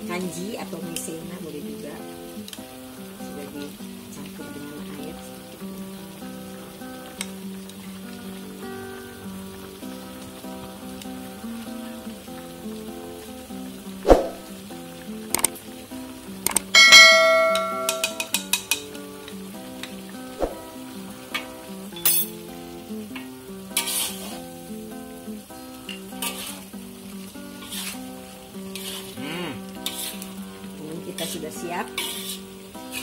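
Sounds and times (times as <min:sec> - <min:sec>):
light sizzle: 0:00.0 - 0:33.0
metal clinks: 0:16.8 - 0:18.4
ringing metal clang: 0:16.8 - 0:18.4
spatula scraping a wok: 0:23.8 - 0:24.5, 0:26.2 - 0:26.7, 0:27.6 - 0:28.1, 0:28.7 - 0:30.4, 0:31.9 - 0:33.0.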